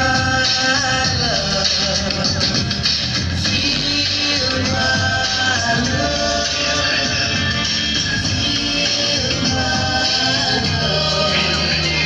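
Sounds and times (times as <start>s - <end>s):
music over loudspeakers: 0.0s - 12.0s.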